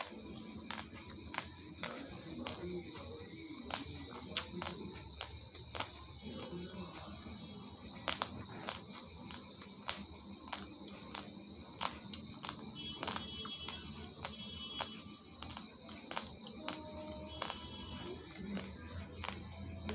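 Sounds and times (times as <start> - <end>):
rice grains crunching between teeth: 0.0 - 3.0, 3.6 - 7.1, 7.8 - 19.9.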